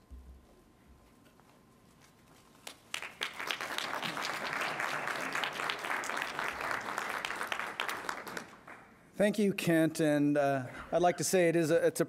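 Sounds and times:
audience applauding: 2.7 - 8.9.

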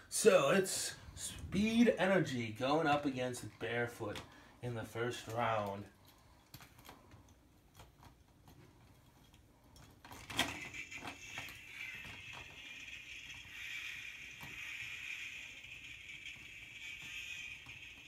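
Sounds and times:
toy trucks clattering: 10.1 - 18.0
high hiss-like whir: 10.6 - 18.0.

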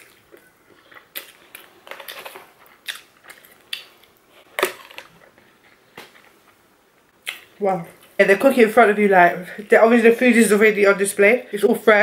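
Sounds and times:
chewing with mouth clicks: 0.0 - 4.2.

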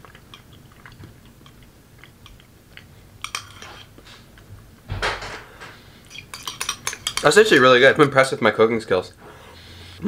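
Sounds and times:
person chewing food: 0.0 - 4.5.

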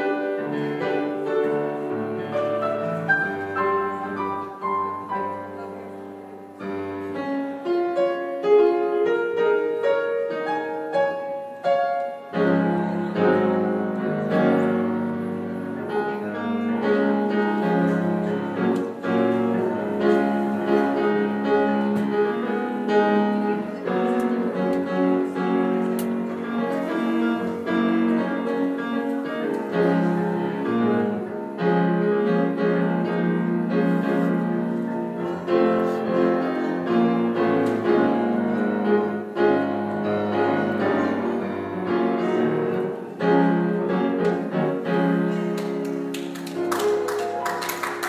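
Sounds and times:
grand piano chords: 0.0 - 48.0
applause: 45.6 - 48.0.

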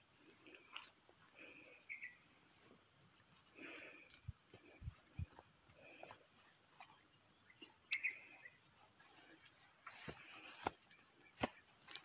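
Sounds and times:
insects droning: 0.0 - 12.0
footsteps on dirt: 9.1 - 12.0.

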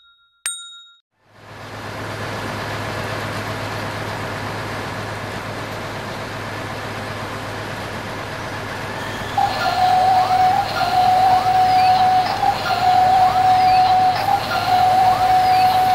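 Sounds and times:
toy excavator engine rumble: 1.3 - 15.9
high motor whine with chirps: 1.5 - 15.9.

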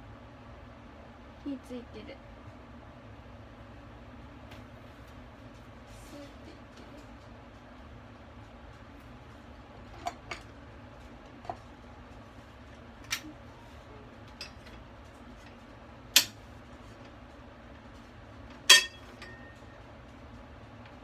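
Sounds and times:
metal cookware knocks and clinks: 18.7 - 19.6.

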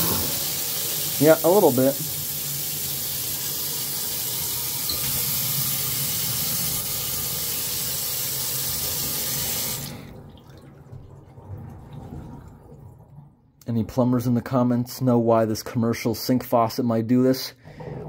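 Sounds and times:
faucet running into steel sink: 0.0 - 10.6.

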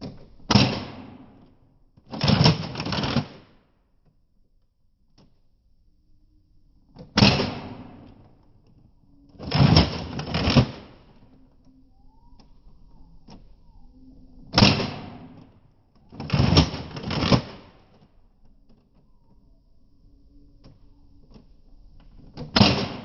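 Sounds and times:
toy blaster firing crack: 14.6 - 15.4, 22.5 - 23.0.

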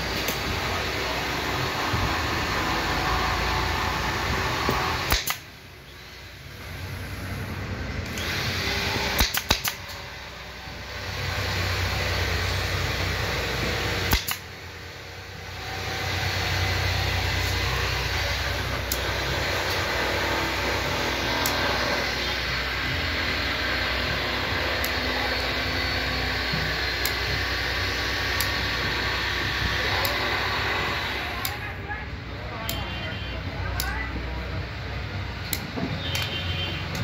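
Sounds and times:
steady machine hum: 0.0 - 37.0
staple gun clacks: 5.0 - 5.5, 9.2 - 10.0, 14.1 - 14.5.

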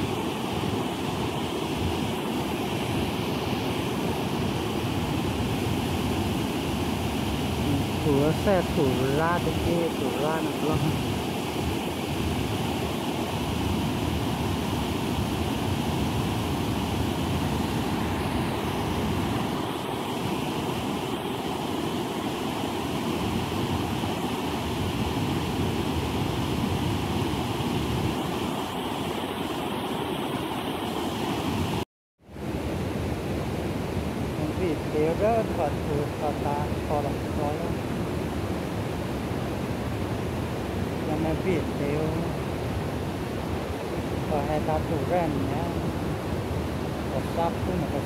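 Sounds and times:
water rushing over a weir: 0.0 - 31.8.

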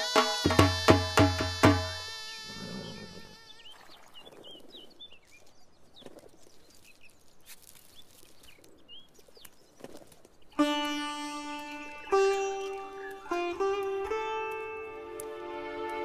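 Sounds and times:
birds chirping faintly: 2.4 - 14.8.

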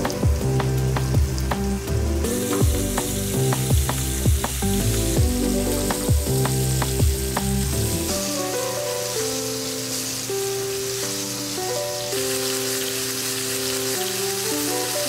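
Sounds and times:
background music with a beat: 0.0 - 9.4
prawns sizzling in oil: 0.0 - 15.0.

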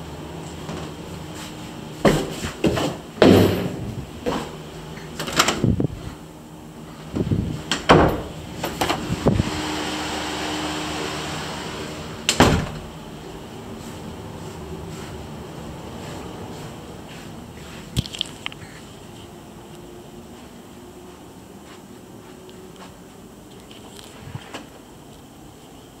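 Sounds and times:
steady hum: 0.0 - 26.0
door bumping open and shut: 5.2 - 5.8, 7.1 - 9.1, 12.3 - 12.9.

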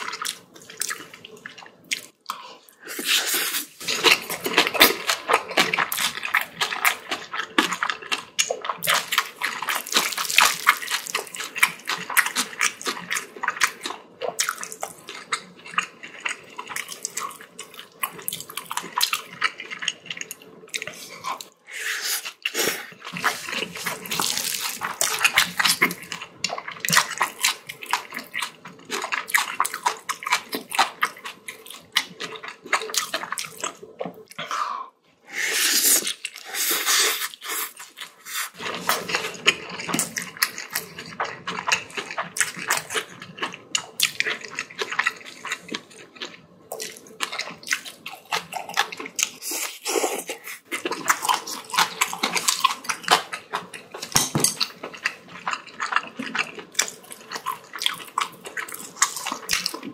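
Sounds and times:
wet chewing and mouth smacking: 22.3 - 34.5, 35.8 - 59.9.

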